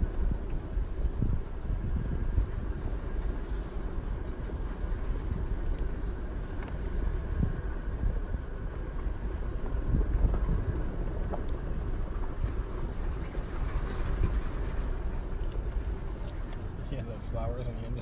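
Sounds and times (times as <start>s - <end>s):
vehicle engine and tyres rumbling: 0.0s - 18.0s.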